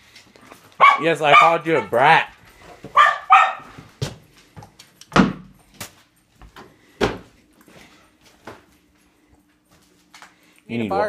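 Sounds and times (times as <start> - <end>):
door knocks and thumps: 5.1 - 5.5.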